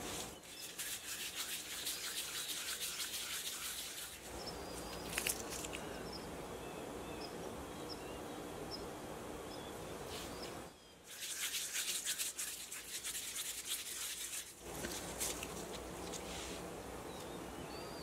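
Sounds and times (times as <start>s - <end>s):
hands rubbing dough: 0.0s - 5.8s, 11.1s - 16.7s.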